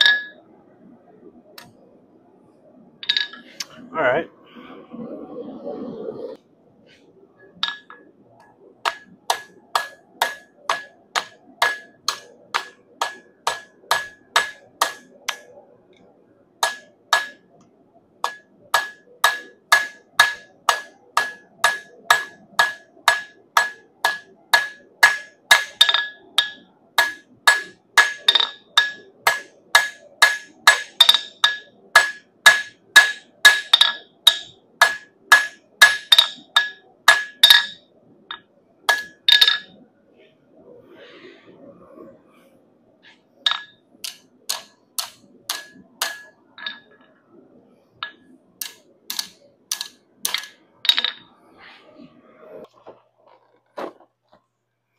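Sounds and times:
hammer striking steel on anvil: 0:00.0 - 0:00.4, 0:08.8 - 0:15.5, 0:16.6 - 0:17.4, 0:18.2 - 0:37.8, 0:38.9 - 0:39.7, 0:43.5 - 0:46.9, 0:48.0 - 0:51.1.

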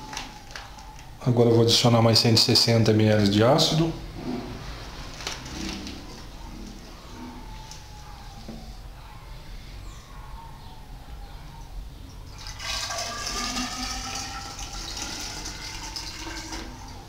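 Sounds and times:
liquid pouring into a cylinder: 0:12.3 - 0:17.0.

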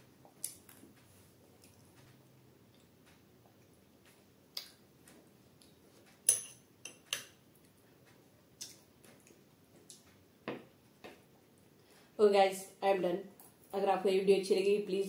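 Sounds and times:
metal spoon clicking against glass: 0:06.3 - 0:07.3.

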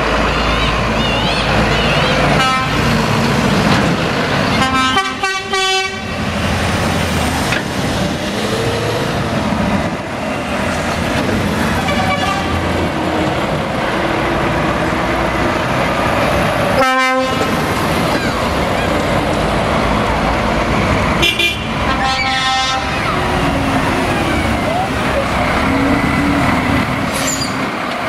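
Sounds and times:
lorry diesel engines passing: 0:00.0 - 0:28.0
truck horn blasts: 0:02.3 - 0:02.9, 0:04.5 - 0:06.1, 0:11.8 - 0:12.6, 0:16.8 - 0:17.5, 0:21.2 - 0:23.1.

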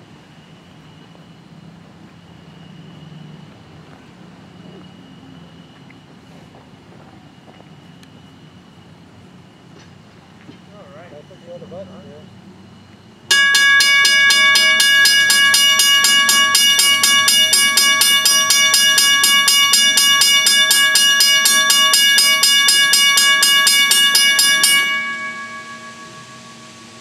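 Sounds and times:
railroad crossing bell ringing: 0:13.3 - 0:27.0.

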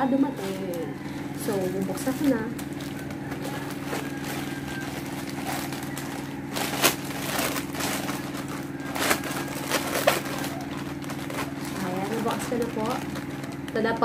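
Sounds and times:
steady low hum: 0:00.0 - 0:14.0
plastic pouch crinkling and tearing: 0:00.3 - 0:14.0.

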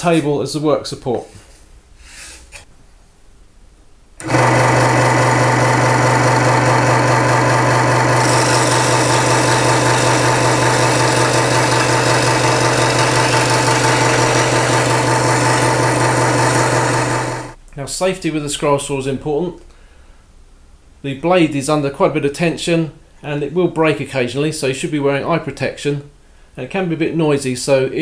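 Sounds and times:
scroll saw motor humming: 0:04.2 - 0:17.6
saw blade rasping through wood: 0:05.2 - 0:17.6.

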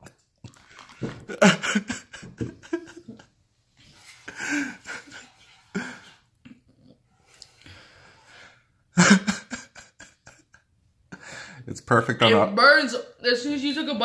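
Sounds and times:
boy chuckling: 0:01.0 - 0:03.3, 0:09.0 - 0:10.6
heavy breathing: 0:04.0 - 0:06.3, 0:07.1 - 0:08.8, 0:11.1 - 0:11.7.

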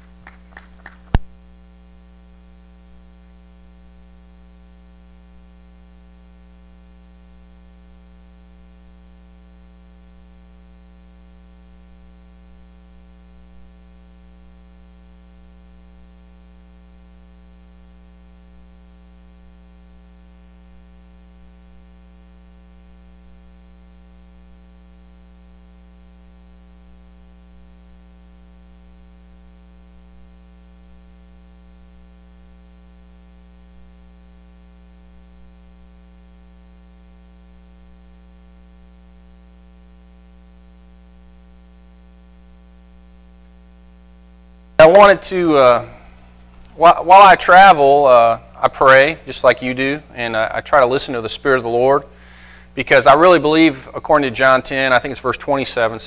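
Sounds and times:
background hiss: 0:00.0 - 0:56.0
electrical mains hum: 0:00.0 - 0:56.0.

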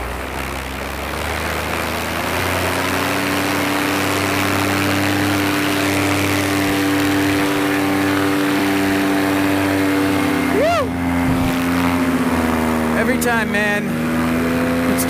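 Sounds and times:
two-stroke engine and propeller: 0:00.0 - 0:15.0
wind on microphone: 0:10.4 - 0:12.9.

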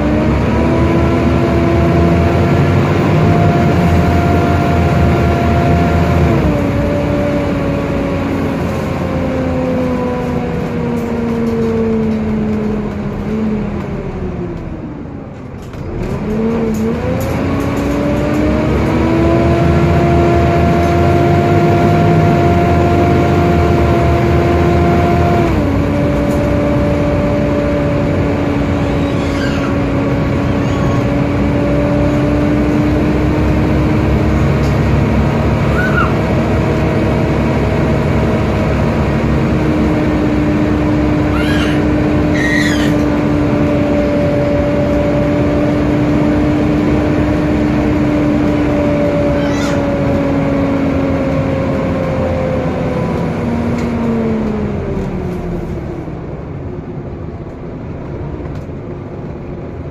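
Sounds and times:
bus diesel engine: 0:00.0 - 0:59.9
loud cooling fan: 0:00.0 - 0:59.9
rising engine whine: 0:00.0 - 0:59.9.

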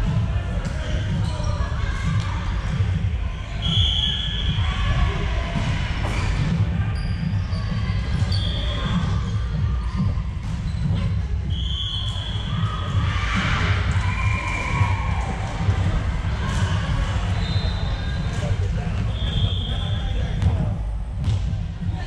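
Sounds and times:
low rumble of hall: 0:00.0 - 0:22.0
sneakers squeaking on floor: 0:06.0 - 0:13.1, 0:16.6 - 0:21.4.

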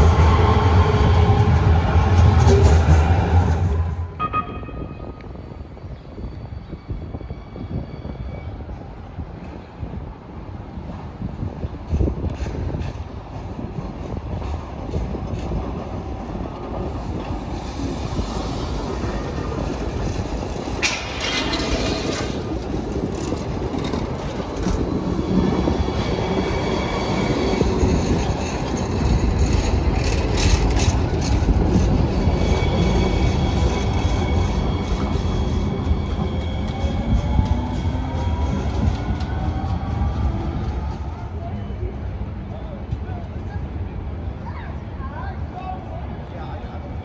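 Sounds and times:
light rail car rumble: 0:00.0 - 0:47.0
high wheel squeal: 0:17.6 - 0:40.2.

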